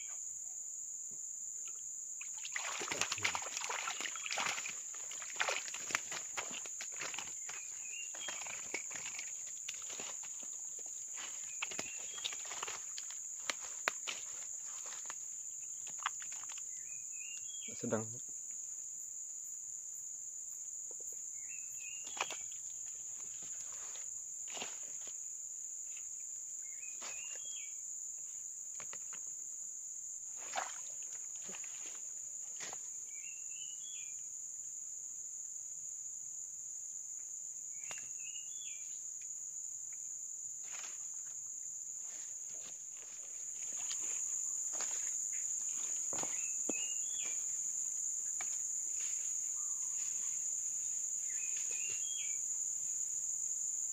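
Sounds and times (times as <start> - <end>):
dry leaves and twigs rustling: 2.6 - 16.8, 22.0 - 25.2, 40.6 - 41.1, 42.0 - 52.2.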